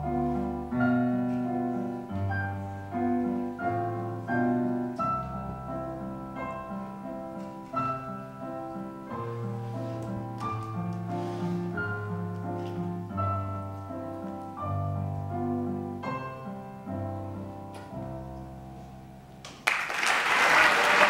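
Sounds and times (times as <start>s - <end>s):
audience applause: 19.5s - 21.0s.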